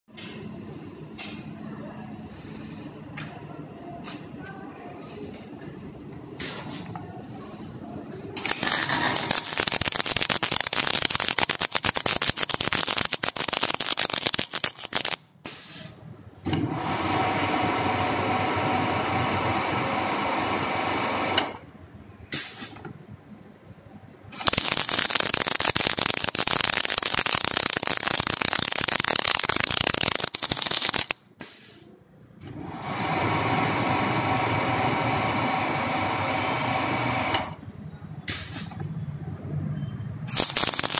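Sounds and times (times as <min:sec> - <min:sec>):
welding arc crackling: 0:08.4 - 0:15.3, 0:24.3 - 0:31.2, 0:40.3 - 0:40.9
welding arc buzzing hiss: 0:08.4 - 0:15.9, 0:24.3 - 0:31.7, 0:40.3 - 0:40.9.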